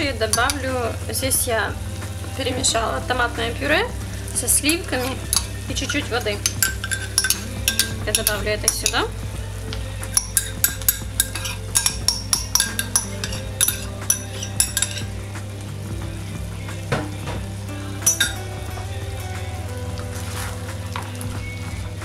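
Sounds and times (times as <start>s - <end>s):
low hum: 0.0s - 22.0s
meat sizzling in a frying pan: 3.2s - 22.0s
metal spoon tapping a bowl: 4.7s - 9.1s, 10.1s - 15.1s, 18.0s - 18.4s.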